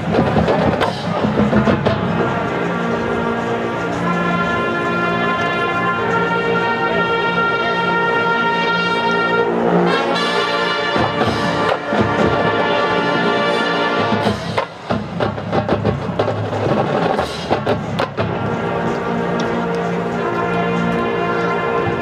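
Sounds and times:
marching band playing: 0.0s - 22.0s
brass sustained chords: 1.8s - 14.6s, 18.2s - 22.0s.

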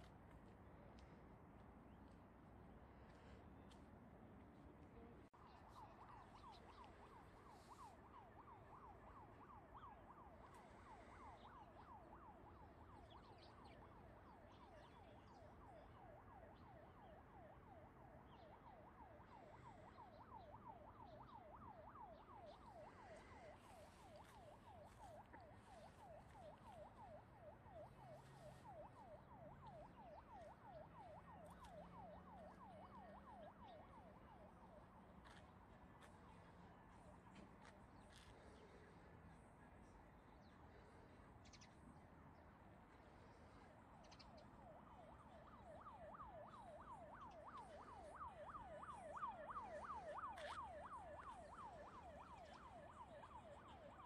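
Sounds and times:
distant siren yelping: 5.4s - 35.4s, 43.9s - 54.0s.

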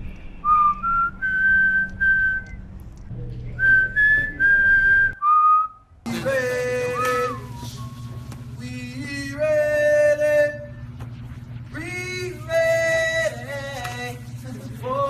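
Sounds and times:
person whistling a tune: 0.4s - 2.6s, 3.6s - 5.9s, 6.9s - 8.2s.

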